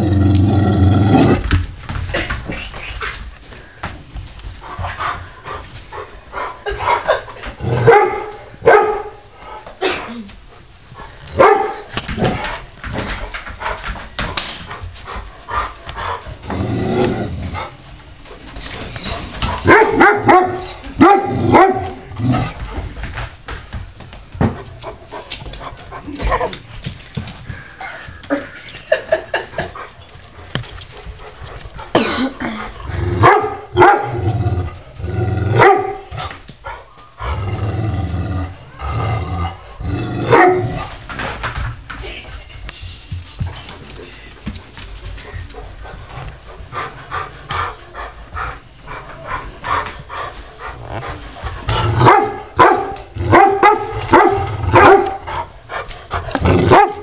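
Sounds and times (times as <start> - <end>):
dog barking: 7.8 - 9.1, 11.4 - 11.8, 19.7 - 22.0, 33.2 - 34.1, 35.6 - 36.1, 40.3 - 40.7, 52.0 - 55.2, 56.7 - 57.0.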